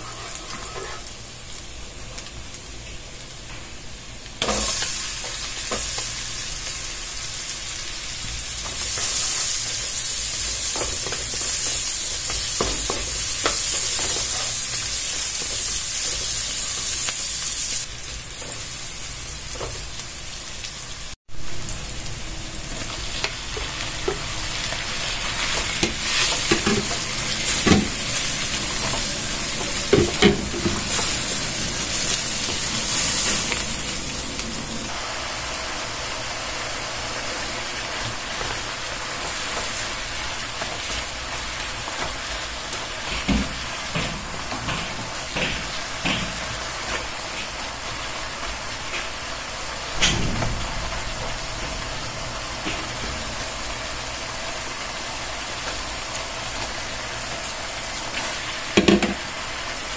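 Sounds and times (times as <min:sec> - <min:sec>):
spatula knocking and scraping a pan: 0:00.0 - 0:01.1, 0:12.2 - 0:17.0, 0:25.4 - 0:31.3, 0:43.0 - 0:47.4
onions and meat sizzling in a wok: 0:00.0 - 0:59.9.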